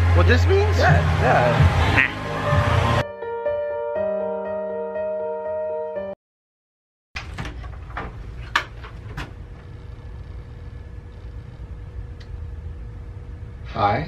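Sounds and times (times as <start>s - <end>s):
low room hum: 7.2s - 14.0s.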